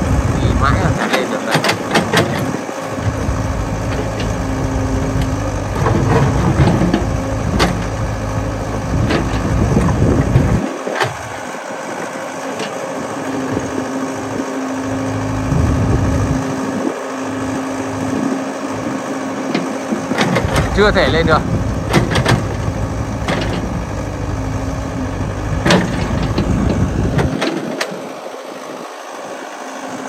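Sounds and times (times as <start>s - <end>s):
excavator diesel engine running: 0.0s - 30.0s
sharp knocks: 1.5s - 2.5s.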